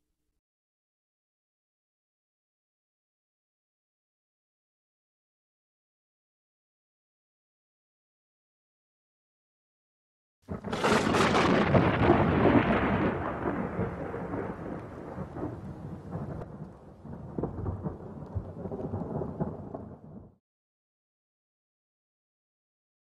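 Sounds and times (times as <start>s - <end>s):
thunder crack and rumble: 10.5s - 20.4s.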